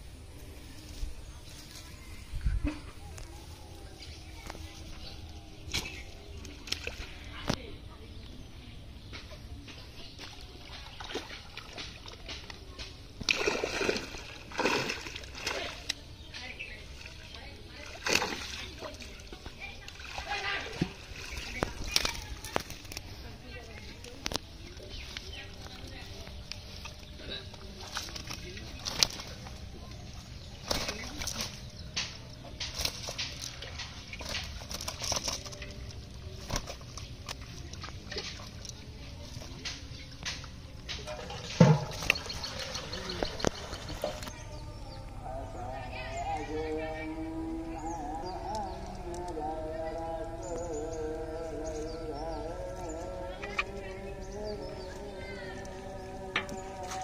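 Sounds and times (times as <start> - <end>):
fish thrashing and splashing: 10.2 - 45.5.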